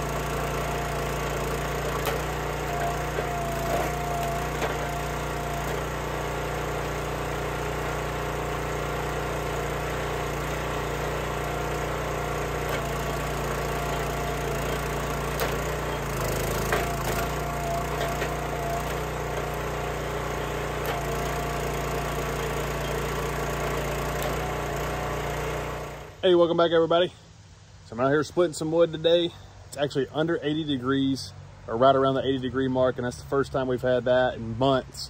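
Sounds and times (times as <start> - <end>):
wood splitting cracks: 0.0 - 8.0, 9.5 - 26.0
hydraulic whine: 0.0 - 26.2
small gas engine running: 0.0 - 26.2.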